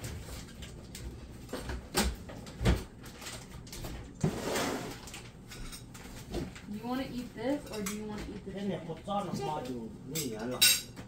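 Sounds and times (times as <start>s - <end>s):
tableware scraping: 4.2s - 5.9s
tableware clattering: 7.5s - 8.1s, 10.1s - 11.0s.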